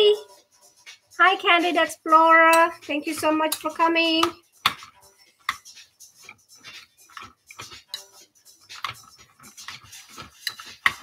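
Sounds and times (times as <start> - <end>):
fork scraping in ceramic bowl: 8.8 - 11.0.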